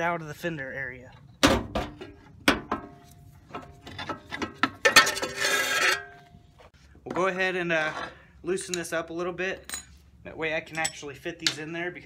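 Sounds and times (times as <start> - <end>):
spring scraping metal: 1.9 - 6.2.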